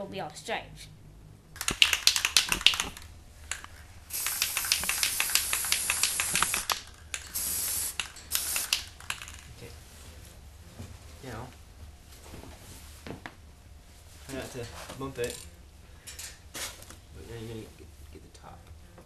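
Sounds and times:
spray paint can hissing: 1.6 - 9.4
spray can rattling: 1.6 - 9.5.

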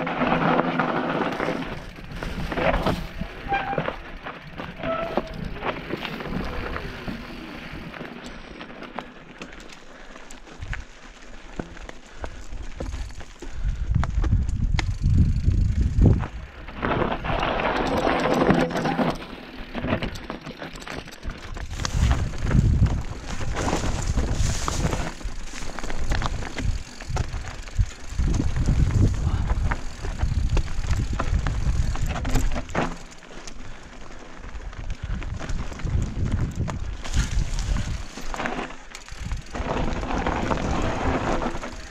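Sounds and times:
bike rattling: 0.0 - 41.9
wind rumbling on microphone: 12.7 - 18.1, 21.2 - 32.8, 34.4 - 41.9
tyres crunching over stones: 16.0 - 41.9.

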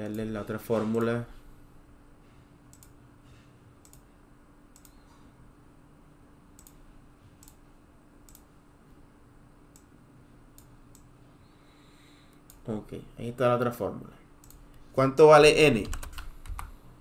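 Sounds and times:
faint steady hum: 0.0 - 17.0
computer mouse clicking: 2.7 - 3.0, 3.8 - 4.1, 4.7 - 5.1, 6.6 - 6.8, 7.4 - 7.6, 8.2 - 8.5, 14.4 - 14.8, 15.8 - 16.8.

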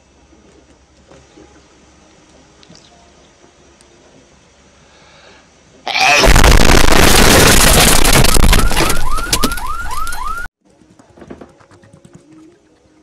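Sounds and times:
distorted noise blast: 6.0 - 9.0.

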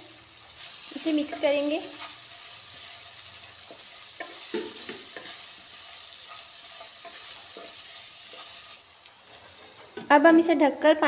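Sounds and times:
potatoes sizzling in oil: 0.0 - 10.7
spatula scraping a pan: 1.3 - 10.0.

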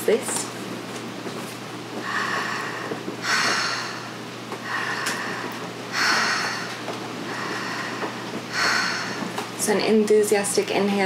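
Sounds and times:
woman breathing through mouth: 2.0 - 9.5.

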